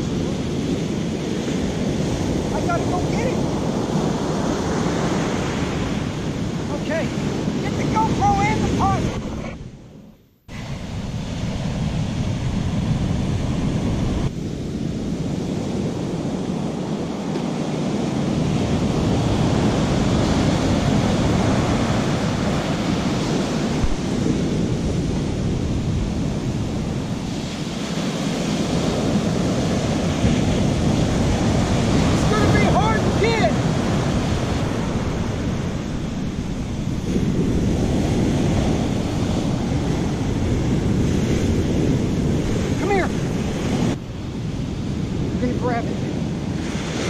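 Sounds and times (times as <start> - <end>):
surf breaking on sand: 0.0 - 9.6, 10.5 - 47.0
wind on microphone: 0.0 - 47.0.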